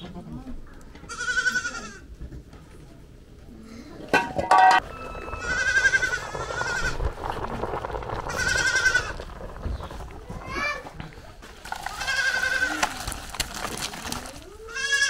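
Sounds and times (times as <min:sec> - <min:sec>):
goat bleating: 0:01.0 - 0:02.1, 0:05.4 - 0:07.0, 0:11.9 - 0:12.8, 0:14.6 - 0:15.0.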